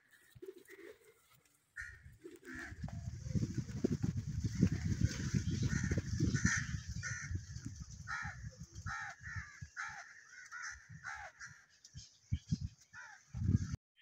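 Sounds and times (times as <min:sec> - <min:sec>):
crows cawing: 0:01.8 - 0:02.9, 0:05.6 - 0:11.8, 0:12.9 - 0:13.3
low rumble on microphone: 0:02.6 - 0:09.8.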